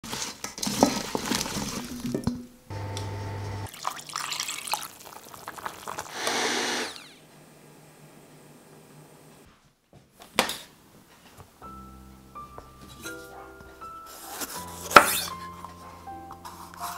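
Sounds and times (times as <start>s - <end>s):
water poured into pot: 0.7s - 2.4s, 3.7s - 6.2s
steady hum: 2.7s - 3.7s
water sloshing and splashing: 3.7s - 6.1s.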